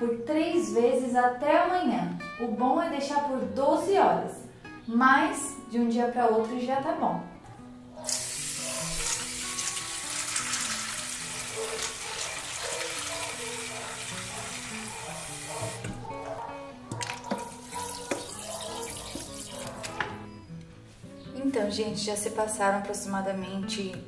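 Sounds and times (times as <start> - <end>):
background music: 0.0 - 24.0
water splashing into steel bowl: 8.1 - 14.6.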